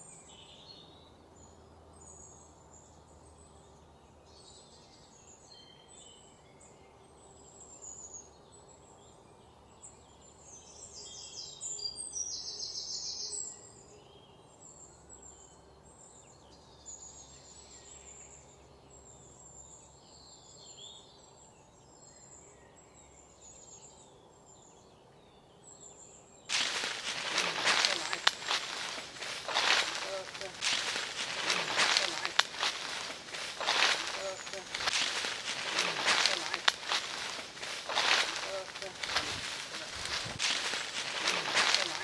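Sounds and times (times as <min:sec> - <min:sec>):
birds chirping and calling: 0:26.5 - 0:42.0
footsteps crunching dry leaves: 0:26.5 - 0:42.0.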